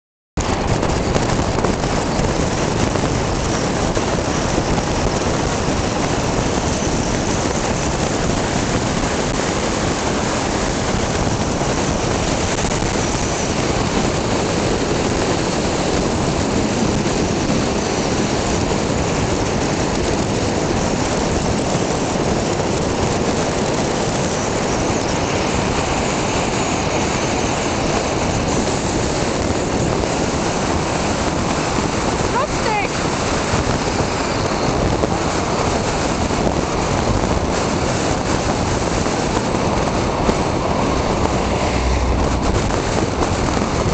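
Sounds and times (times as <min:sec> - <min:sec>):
tyres on asphalt: 0:00.4 - 0:43.9
wind: 0:00.4 - 0:43.9
car engine: 0:34.8 - 0:43.9.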